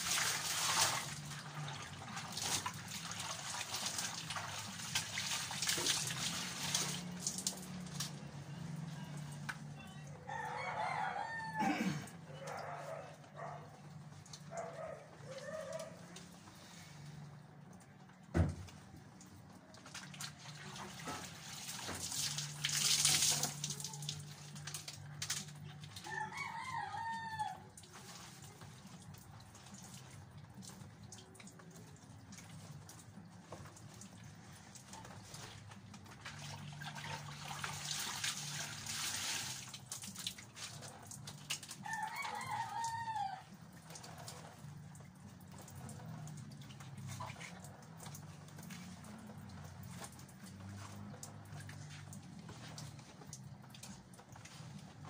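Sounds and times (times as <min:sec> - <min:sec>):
hand-washing laundry splashes: 0:00.0 - 0:55.0
rooster crowing: 0:09.9 - 0:13.6, 0:26.0 - 0:27.7, 0:41.8 - 0:43.6.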